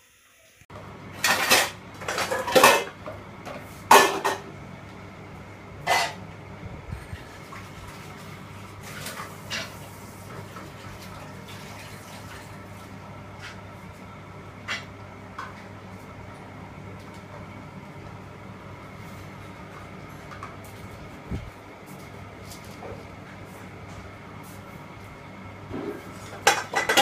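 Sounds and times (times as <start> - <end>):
low hum: 6.6 - 8.2
dishes clinking and knocking: 25.8 - 27.0.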